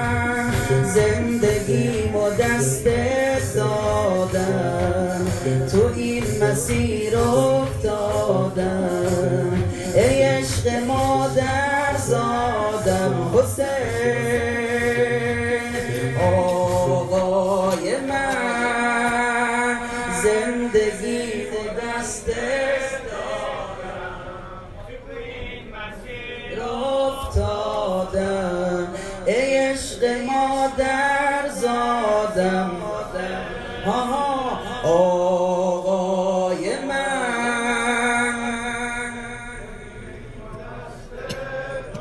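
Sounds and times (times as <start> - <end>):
man chanting a lament: 0.0 - 42.0.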